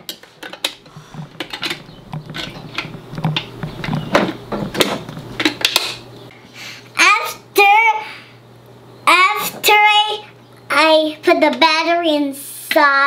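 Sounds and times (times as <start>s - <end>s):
plastic clicks and knocks: 0.0s - 5.9s.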